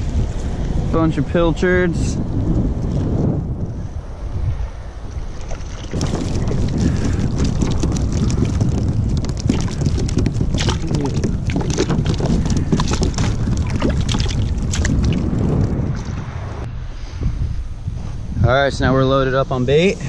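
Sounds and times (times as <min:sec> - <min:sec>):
wind buffeting microphone: 0:00.0 - 0:20.0
fish splashing into water: 0:05.4 - 0:16.1
fish flopping on a deck pad: 0:05.4 - 0:16.2.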